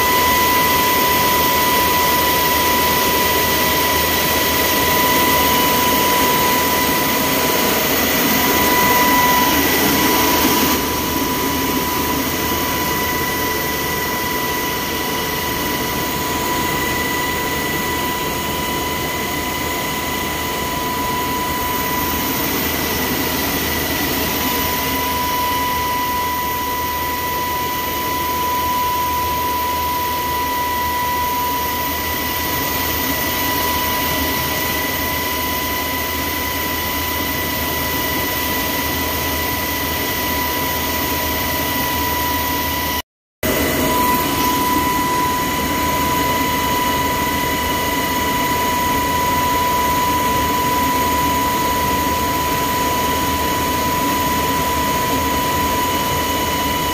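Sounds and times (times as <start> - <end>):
helicopter engine and rotor noise: 0.0 - 56.9
high even whine: 0.0 - 56.9.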